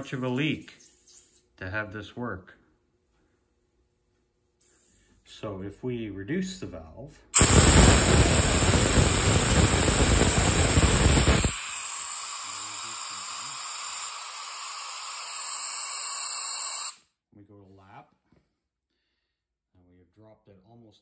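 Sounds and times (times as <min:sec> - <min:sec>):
compressed air hissing: 0:04.6 - 0:05.2, 0:07.4 - 0:17.0
thin high whistle: 0:07.4 - 0:17.0.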